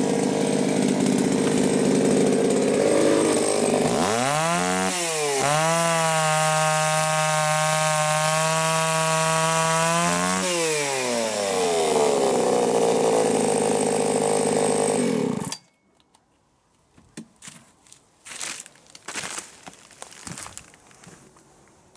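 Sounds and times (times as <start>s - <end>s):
chainsaw cutting wood: 0.0s - 15.6s.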